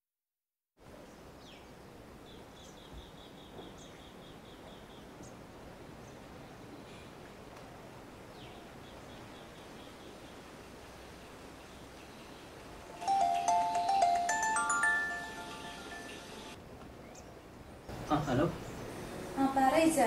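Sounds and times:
faint ambient hiss: 0:00.8 - 0:20.0
small birds chirping: 0:01.0 - 0:07.2, 0:08.2 - 0:14.3, 0:17.0 - 0:19.2.

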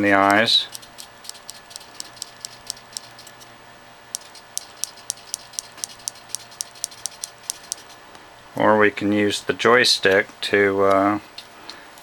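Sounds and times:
servo ticking: 0:00.0 - 0:03.5, 0:04.1 - 0:07.9
faint steady hum: 0:00.0 - 0:12.0.

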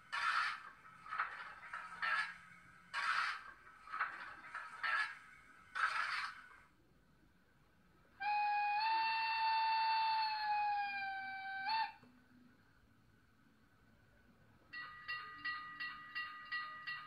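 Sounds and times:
model train steam whistle: 0:08.2 - 0:12.1.

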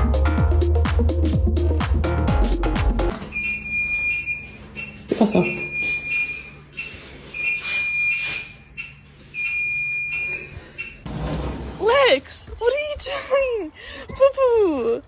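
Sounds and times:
electronic alarm beeping: 0:03.3 - 0:11.0.

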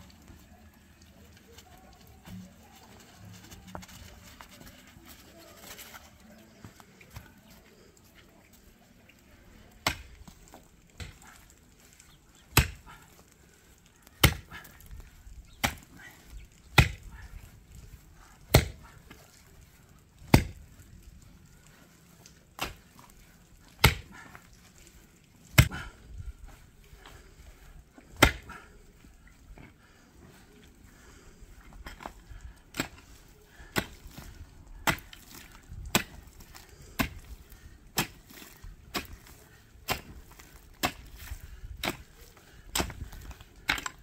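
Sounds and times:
pick striking stony earth: 0:09.8 - 0:13.0, 0:14.1 - 0:16.0, 0:16.6 - 0:17.3, 0:18.5 - 0:19.0, 0:20.2 - 0:20.8, 0:22.6 - 0:23.1, 0:23.7 - 0:24.3, 0:25.5 - 0:25.9, 0:28.2 - 0:28.6, 0:31.8 - 0:33.1, 0:33.7 - 0:44.0.

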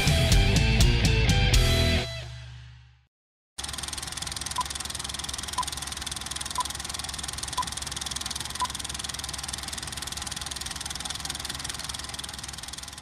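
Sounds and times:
film projector whirring: 0:03.6 - 0:13.0.

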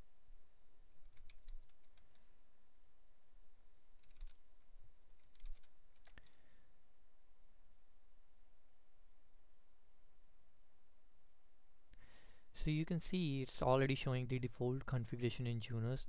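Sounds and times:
computer keyboard typing: 0:01.0 - 0:02.3, 0:04.0 - 0:04.4, 0:05.1 - 0:06.4.

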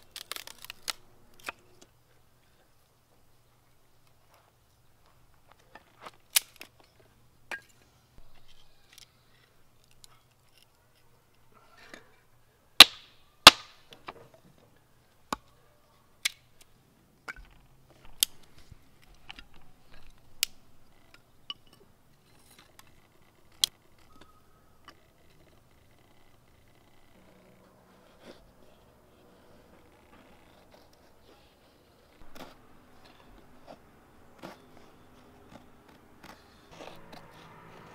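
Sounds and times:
knife splitting wood with cracks: 0:00.0 - 0:01.7, 0:12.8 - 0:13.8.

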